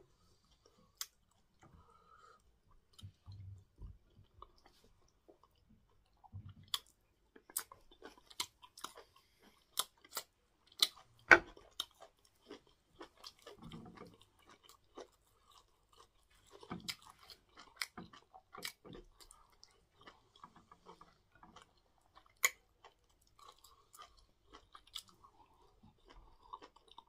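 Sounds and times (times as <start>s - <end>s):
person chewing with wet clicks: 0.5s - 27.0s.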